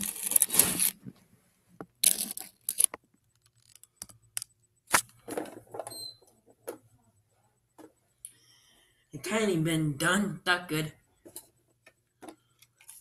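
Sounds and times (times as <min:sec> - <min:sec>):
crackly plastic rustles: 0:00.0 - 0:01.1, 0:02.0 - 0:04.0.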